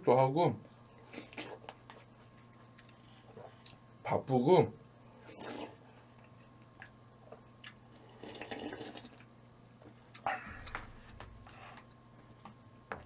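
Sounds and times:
wet slurping: 1.0s - 1.7s, 5.2s - 5.8s, 7.6s - 9.2s.

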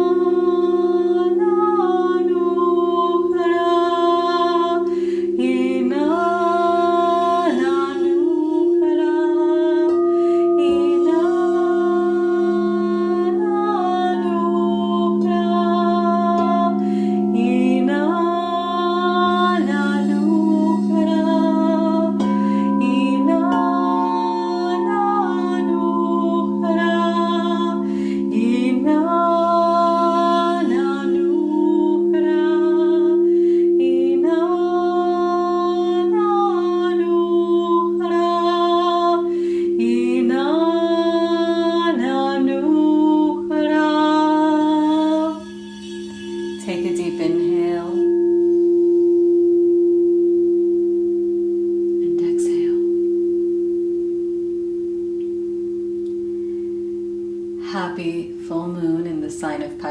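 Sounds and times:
woman singing held notes: 0.0s - 33.2s
crystal singing bowls drone: 0.0s - 59.9s.

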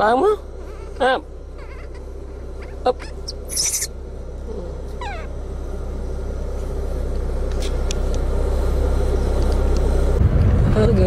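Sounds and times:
car engine and road noise: 0.0s - 11.0s
baby monkey squeak: 1.6s - 4.0s, 5.0s - 5.3s.

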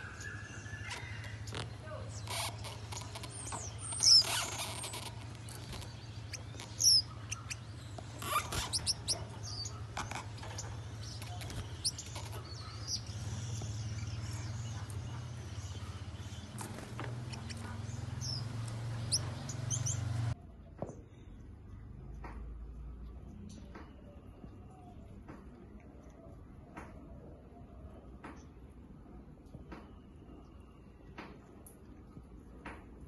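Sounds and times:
finches chirping: 0.0s - 20.4s.

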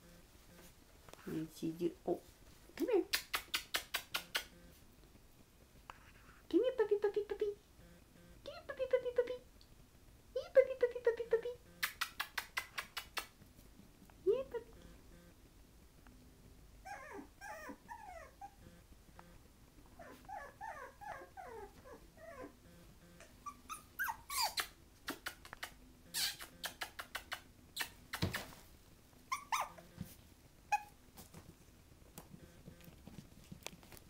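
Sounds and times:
puppies whimpering: 16.8s - 18.6s, 23.3s - 24.7s, 29.3s - 29.8s.

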